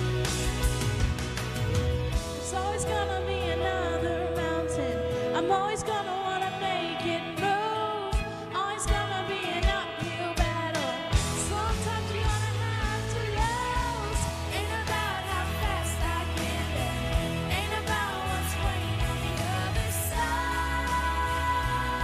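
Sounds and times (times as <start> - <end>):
backing music with drum beat: 0.0 - 3.6, 8.1 - 22.0
girls singing a pop duet: 2.4 - 22.0.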